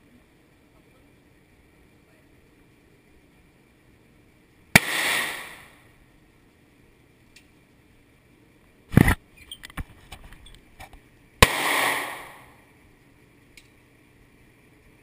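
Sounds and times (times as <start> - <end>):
handgun shots: 4.8 - 5.7, 11.4 - 12.5.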